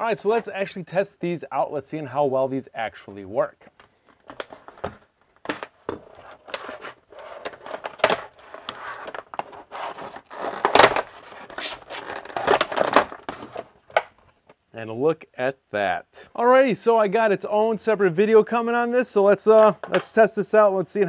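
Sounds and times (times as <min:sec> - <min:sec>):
plastic pack crackling and snapping: 0:03.8 - 0:14.5.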